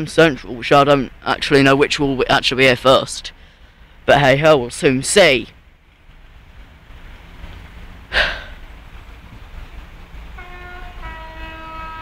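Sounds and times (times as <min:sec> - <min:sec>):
train horn: 0:10.4 - 0:12.0.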